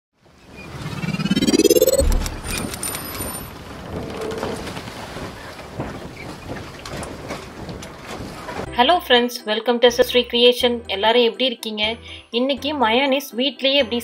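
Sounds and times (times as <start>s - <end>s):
rising whoosh: 0.6s - 3.0s
low boom: 1.0s - 2.8s.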